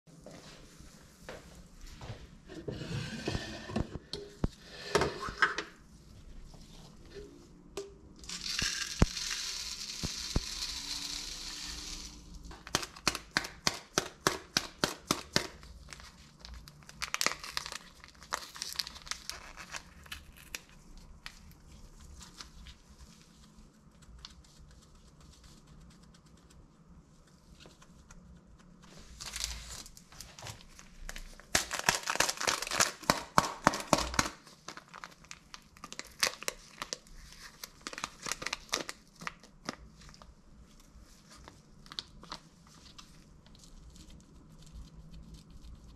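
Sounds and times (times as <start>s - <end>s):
paper sachet crinkling and tearing: 8.2s - 26.4s, 28.9s - 45.9s.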